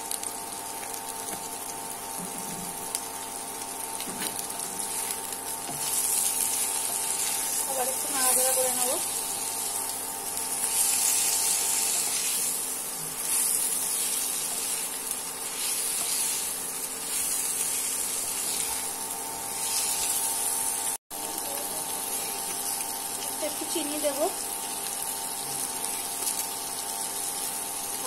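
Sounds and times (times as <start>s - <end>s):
faint cooktop hum: 0.0s - 28.0s
vegetables sizzling in hot oil: 0.0s - 28.0s
wooden spatula sweeping wok: 10.4s - 20.7s.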